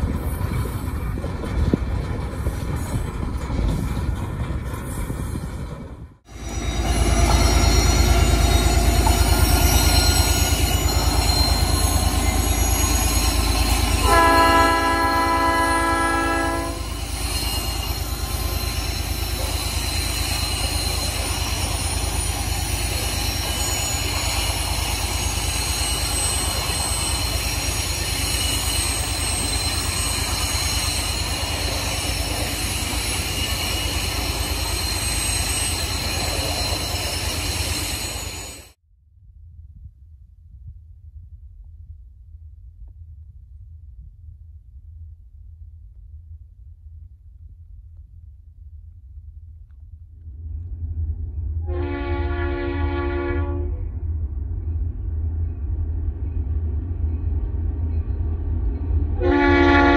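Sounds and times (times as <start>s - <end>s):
train wheels on rails: 0.0s - 38.8s
train horn: 14.0s - 16.9s, 51.6s - 54.0s, 59.2s - 59.9s.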